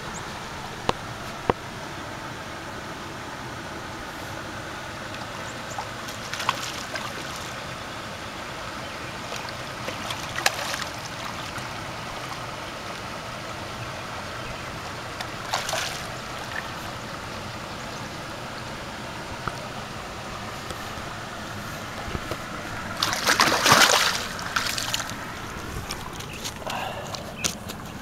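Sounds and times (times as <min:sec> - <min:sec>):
shallow river water rushing: 0:00.0 - 0:28.0
fish splashing at surface: 0:05.8 - 0:07.6, 0:09.3 - 0:11.7, 0:15.2 - 0:16.9, 0:22.9 - 0:25.2.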